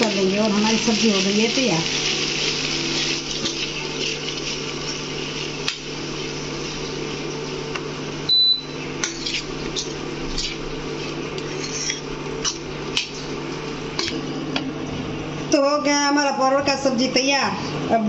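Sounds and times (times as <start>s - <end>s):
food sizzling in a pan: 0.0s - 14.5s
steady mechanical hum: 0.0s - 18.0s
short high beep: 8.3s - 8.8s.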